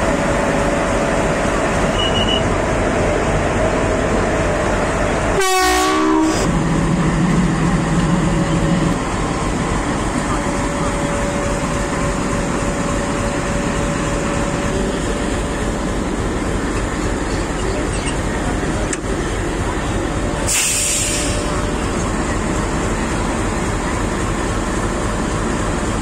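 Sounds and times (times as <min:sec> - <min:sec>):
train running noise: 0:00.0 - 0:26.0
click: 0:18.9 - 0:19.1
short hiss: 0:20.5 - 0:21.4.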